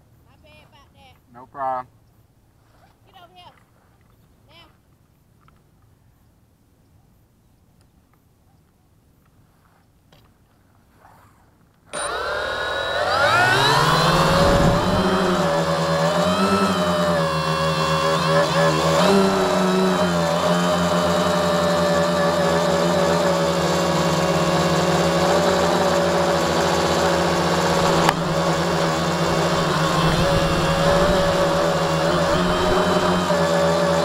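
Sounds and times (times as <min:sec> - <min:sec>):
drone motors whining: 0:11.9 - 0:34.0.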